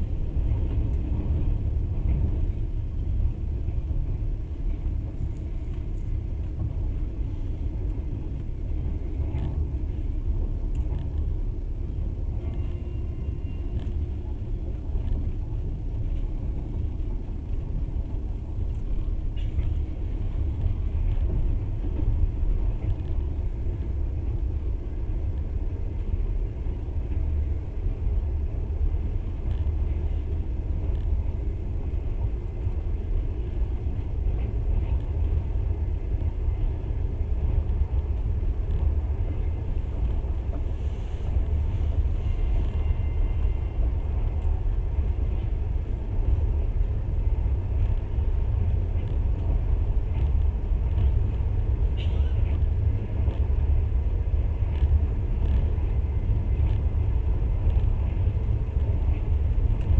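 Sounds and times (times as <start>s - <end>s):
train wheels rumbling on rails: 0.0s - 59.9s.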